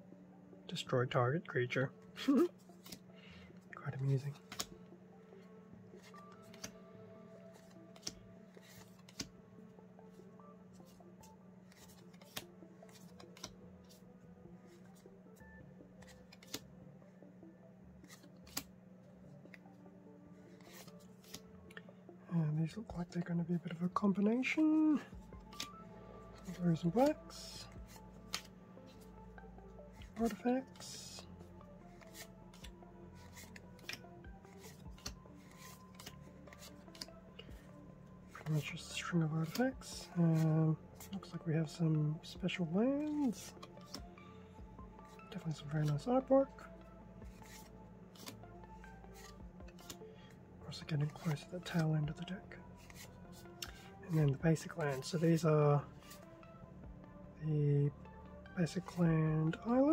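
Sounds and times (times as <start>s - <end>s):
cards dropping onto pile: 4.2s - 4.8s, 18.0s - 18.7s, 26.4s - 28.5s
trading card snaps: 4.5s - 4.7s, 6.1s - 6.7s, 16.0s - 16.6s, 18.1s - 18.7s, 28.3s - 28.5s.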